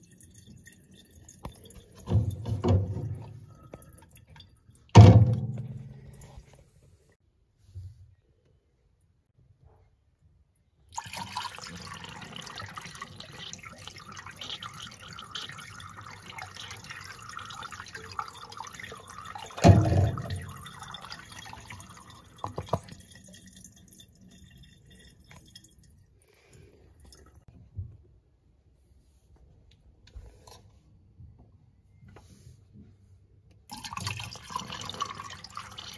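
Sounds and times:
water trickling and dripping: 0.0s - 6.6s, 10.9s - 27.5s, 33.7s - 35.9s
toilet flushing: 10.9s - 23.2s, 33.7s - 35.9s.

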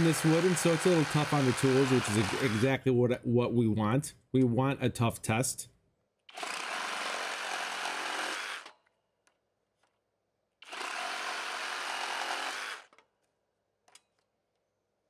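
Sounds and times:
reciprocating saw cutting wood: 0.0s - 2.8s, 6.3s - 8.8s, 10.6s - 13.0s.

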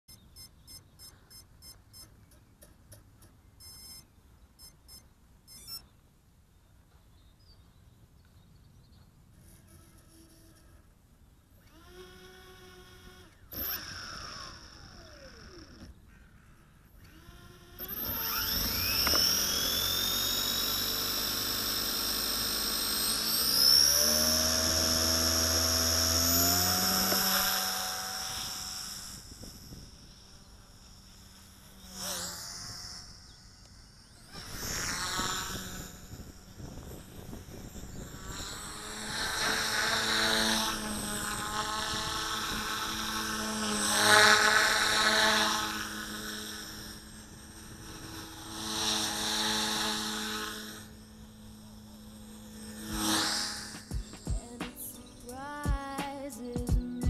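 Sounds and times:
short high electronic beeps: 0.1s - 2.3s, 3.6s - 5.9s
rc helicopter motor whine: 0.1s - 5.9s, 9.3s - 55.8s
rising run of electronic tones: 0.1s - 6.0s, 11.7s - 16.0s, 17.0s - 55.6s.

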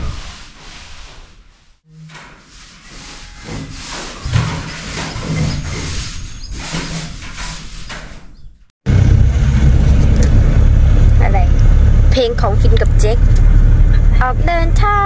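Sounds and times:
paint roller swishing on wall: 0.0s - 8.4s.

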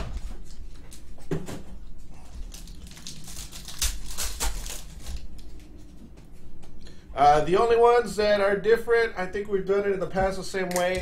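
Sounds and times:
foil pack crinkling and tearing: 2.1s - 5.6s.

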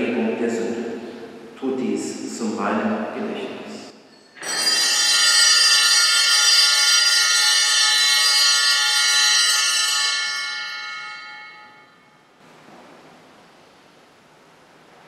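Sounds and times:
altar bells ringing: 4.0s - 12.3s.

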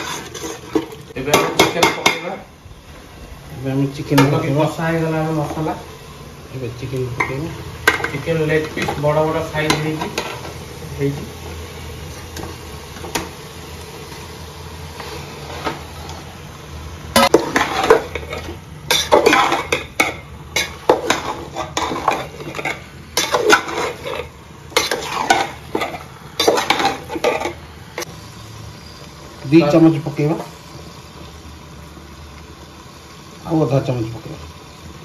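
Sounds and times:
spatula scraping a metal pot: 0.0s - 1.0s, 17.2s - 27.6s
chicken sizzling in a pot: 0.0s - 35.0s.

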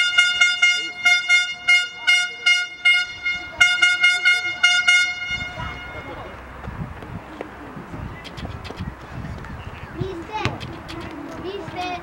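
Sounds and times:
horn tooting: 0.0s - 6.6s.

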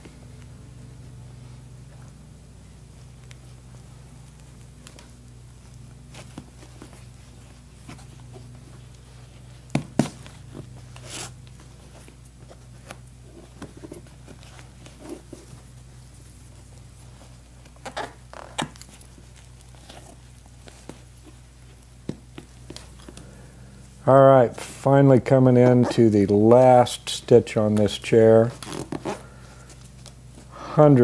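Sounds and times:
steady low hum: 0.0s - 31.0s
thread drawn through leather: 28.5s - 29.2s.

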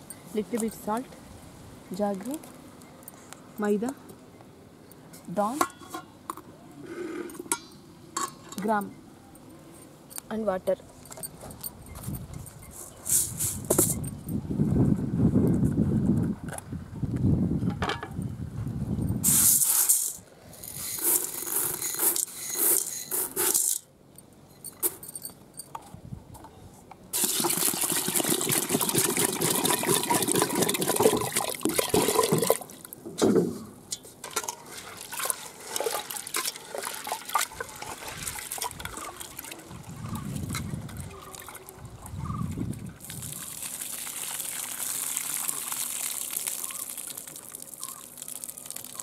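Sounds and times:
water pouring into a metal pot: 27.2s - 32.7s, 43.0s - 49.0s.

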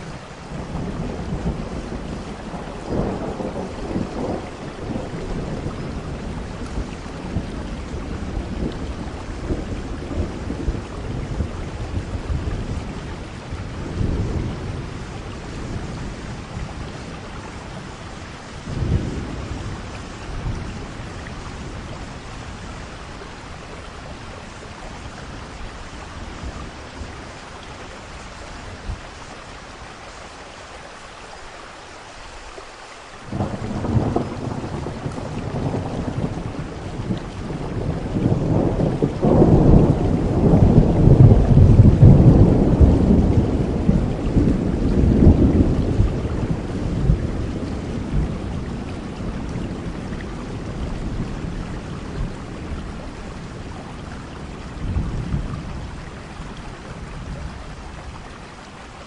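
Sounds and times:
rolling thunder: 0.0s - 29.0s, 33.3s - 58.3s
heavy rain falling: 0.0s - 59.0s
sharp thunderclap: 33.3s - 51.6s.

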